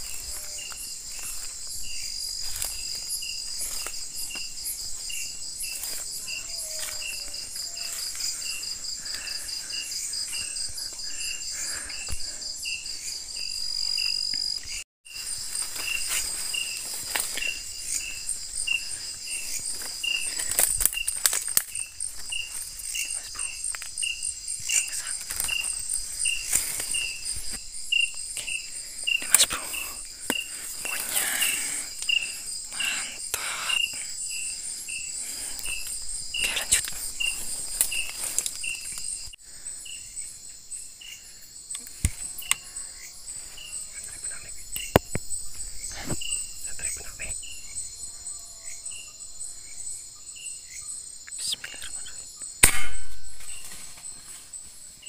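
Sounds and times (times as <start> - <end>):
crickets and insects trilling: 0.0 - 55.0
insect chirp: 0.0 - 55.0
rustling brush: 15.2 - 18.4, 25.2 - 27.6.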